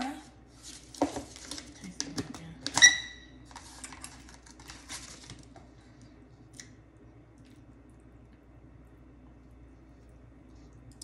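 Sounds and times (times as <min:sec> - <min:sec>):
paper bowl rustling and clicking: 0:00.6 - 0:05.7.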